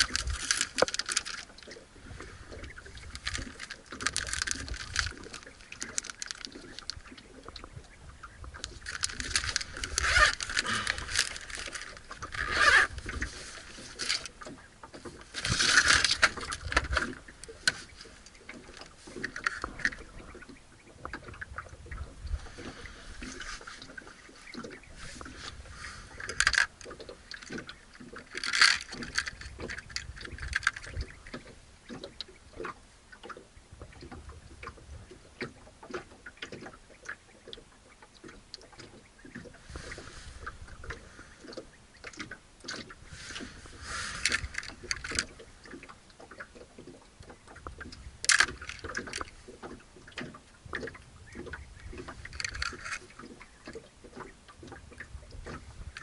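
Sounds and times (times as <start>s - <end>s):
plastic bag crinkling: 0.0s - 1.5s, 3.1s - 7.0s, 8.8s - 12.9s, 28.3s - 29.4s
plastic tackle box rummaged: 0.0s - 1.8s, 2.5s - 7.2s, 8.6s - 14.4s, 15.0s - 20.1s, 24.5s - 31.0s, 42.7s - 45.4s, 48.2s - 49.3s, 52.2s - 53.2s
lead weights rattling: 2.9s - 7.0s, 8.7s - 13.2s.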